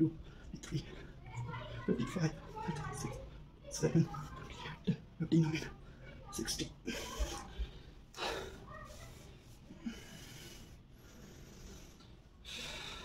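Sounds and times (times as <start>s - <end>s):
man breathing heavily: 0.0s - 1.8s, 6.8s - 13.0s.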